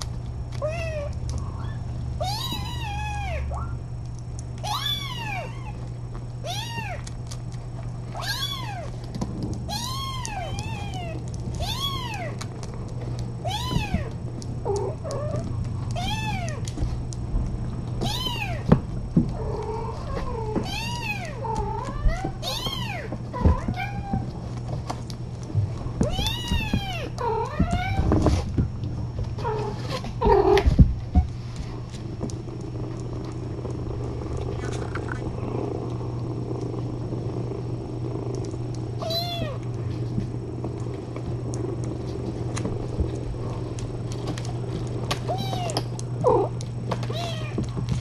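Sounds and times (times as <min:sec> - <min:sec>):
steady low hum: 0:00.0 - 0:48.0
kittens meowing: 0:00.6 - 0:03.7, 0:04.6 - 0:05.8, 0:08.1 - 0:09.0, 0:09.7 - 0:12.5, 0:13.4 - 0:16.7, 0:18.0 - 0:18.7, 0:26.0 - 0:28.1, 0:39.0 - 0:39.6, 0:45.2 - 0:47.7.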